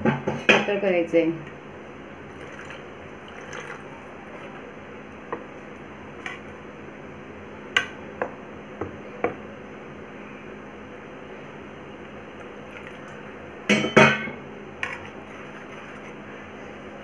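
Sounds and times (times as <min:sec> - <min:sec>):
water pouring: 0:02.3 - 0:04.5, 0:12.6 - 0:13.4
spoon stirring batter in bowl: 0:14.8 - 0:16.2.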